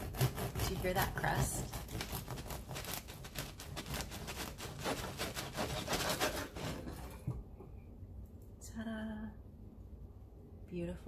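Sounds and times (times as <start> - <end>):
bread knife sawing crust: 0.0 - 7.2.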